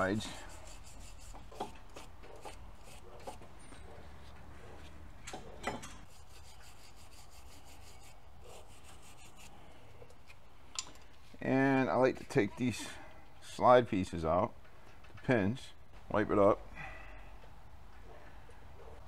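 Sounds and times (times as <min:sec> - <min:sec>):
wire brush scrubbing metal: 0:00.0 - 0:03.4, 0:06.0 - 0:09.6.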